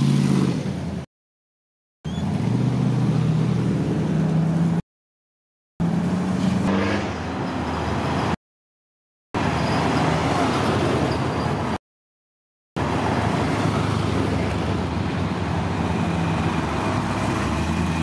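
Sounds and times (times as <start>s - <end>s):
road noise: 0.0s - 1.1s, 2.0s - 4.8s, 5.8s - 8.4s, 9.4s - 11.8s, 12.8s - 18.0s.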